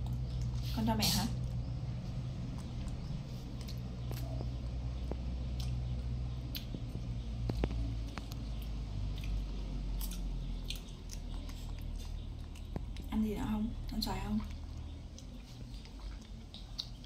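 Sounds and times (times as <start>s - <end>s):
wet chewing: 0.0s - 0.7s, 1.3s - 17.0s
low hum: 0.0s - 17.0s.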